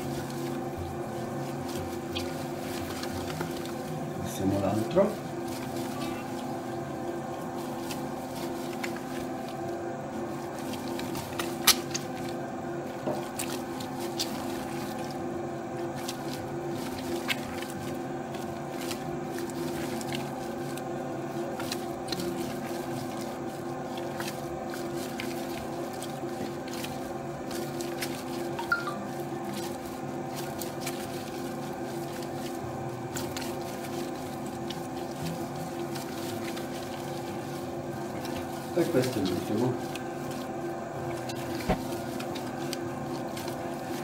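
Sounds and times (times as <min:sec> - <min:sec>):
dough mixer motor humming: 0:00.0 - 0:44.0
wet dough slaps: 0:10.4 - 0:44.0.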